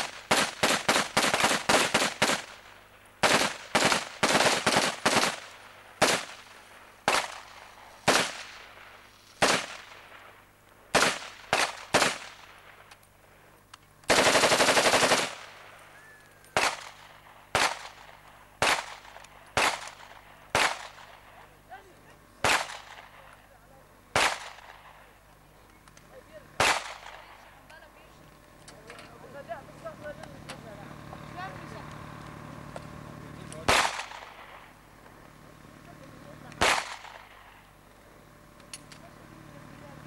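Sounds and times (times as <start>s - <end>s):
automatic gunfire burst: 0.0s - 10.2s, 10.9s - 12.6s, 14.1s - 15.7s, 16.6s - 21.4s, 22.4s - 23.2s, 24.1s - 25.0s, 26.6s - 27.5s, 33.6s - 34.7s, 36.6s - 37.7s
rifle shots echoing: 0.0s - 13.0s, 14.0s - 21.7s, 22.4s - 25.4s, 26.5s - 27.7s, 33.6s - 34.8s, 36.6s - 37.8s.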